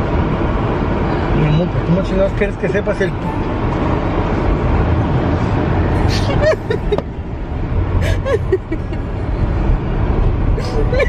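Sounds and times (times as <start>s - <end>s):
car cabin road rumble: 0.0s - 11.0s
woman laughing: 6.1s - 7.1s, 8.0s - 9.1s, 10.6s - 11.0s.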